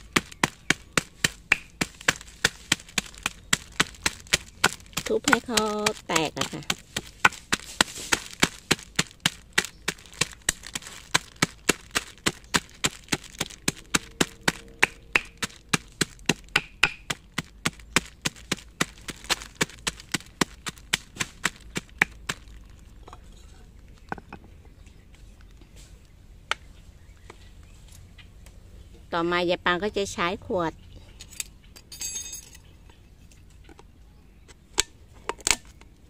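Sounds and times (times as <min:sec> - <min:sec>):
pestle pounding on stone: 0:00.0 - 0:22.9.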